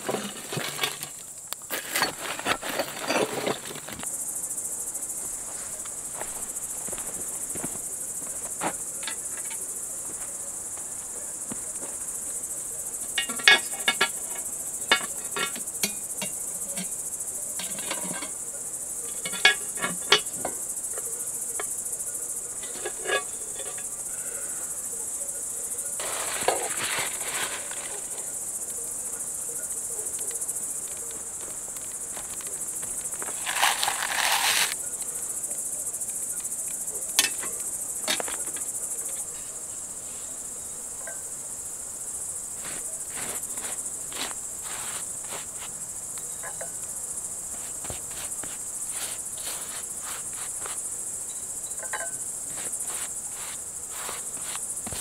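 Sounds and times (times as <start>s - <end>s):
handling knocks and scrapes: 0.0s - 4.1s, 5.2s - 10.4s, 22.6s - 23.9s, 26.0s - 28.4s, 30.9s - 34.8s, 42.6s - 45.8s, 47.5s - 51.0s, 51.8s - 55.0s
crickets chirring: 0.0s - 55.0s.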